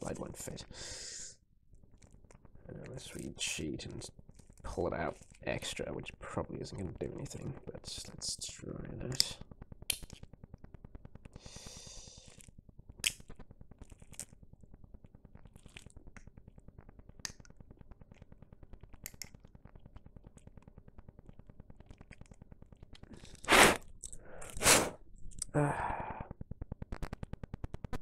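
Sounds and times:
sharp clicks of plastic parts: 12.3s - 13.4s, 18.9s - 19.5s.

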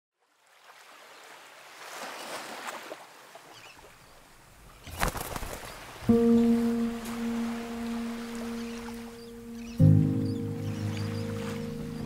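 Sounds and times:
wind: 0.1s - 12.0s.

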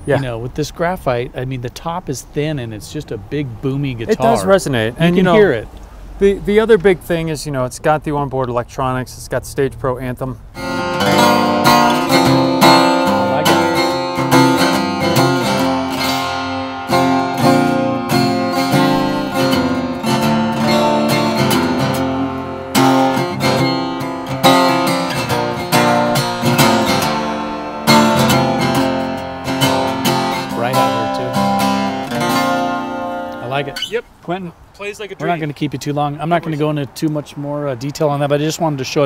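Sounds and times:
acoustic guitar picking and strumming: 0.0s - 0.4s, 4.0s - 7.3s, 10.4s - 34.2s.

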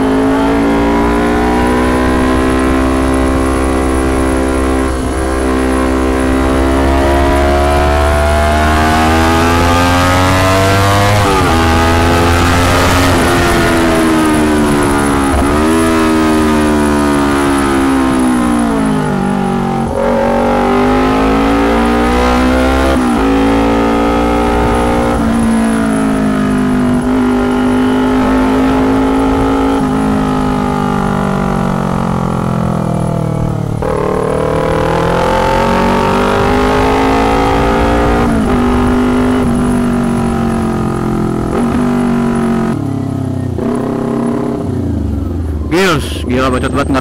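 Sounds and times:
motorcycle engine revving: 0.0s - 47.0s.

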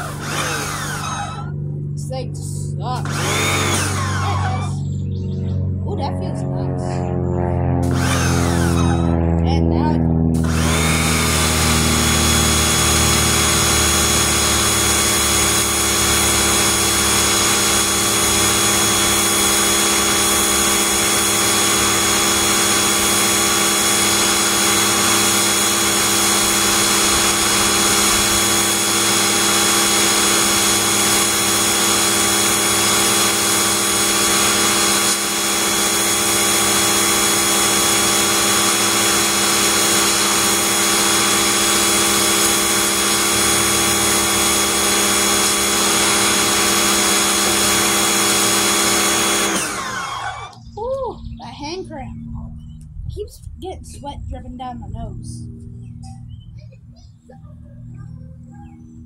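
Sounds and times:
pressure washer spraying concrete: 0.0s - 1.2s, 10.4s - 49.9s.

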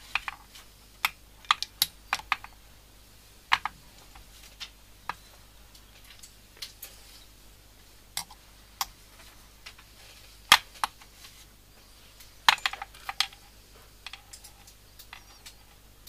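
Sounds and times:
small tools clicking and tapping: 12.2s - 13.4s, 14.0s - 15.8s.

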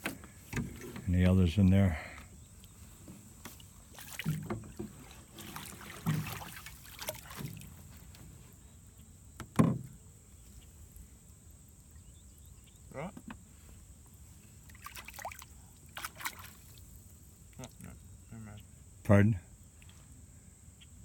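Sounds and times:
water splashing and dripping: 3.4s - 8.2s, 14.6s - 17.1s
dull knocks against boat: 4.2s - 6.5s, 9.4s - 9.9s.

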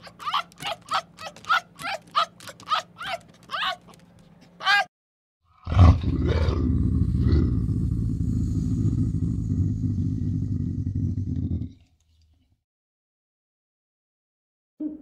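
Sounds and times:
wild cat growling: 5.6s - 11.9s.

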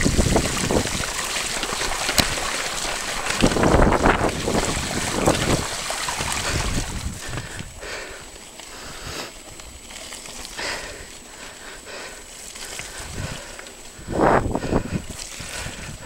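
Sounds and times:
tyres splashing through water: 0.0s - 7.5s
wind buffeting microphone: 0.0s - 7.9s, 12.8s - 16.0s
tyres rattling over stones: 0.0s - 16.0s.

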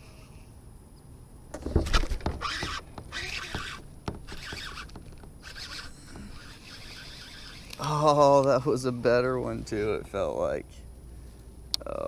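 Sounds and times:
sudden thump: 1.5s - 5.4s
fishing reel cranking: 2.4s - 8.8s.

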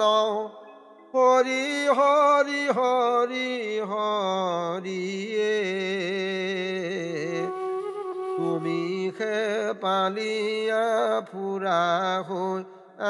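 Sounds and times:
devotional melody with gliding ornaments: 0.0s - 13.0s.

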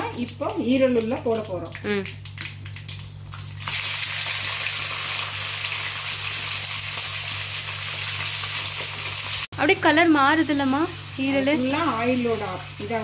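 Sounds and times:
oil crackling: 0.0s - 9.5s
liver sizzling in hot oil: 0.0s - 13.0s.

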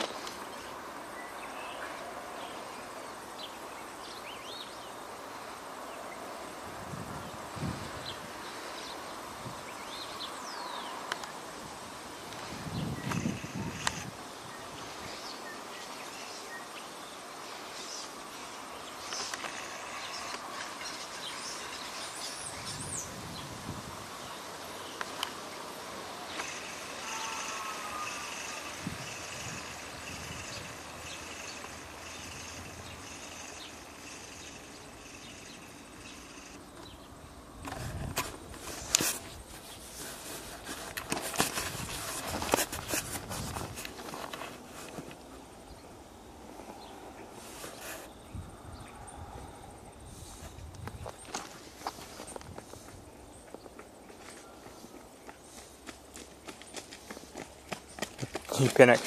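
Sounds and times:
outdoor background hiss: 0.0s - 59.0s
small birds chirping: 12.4s - 38.1s
footsteps crunching on gravel: 50.8s - 59.0s.

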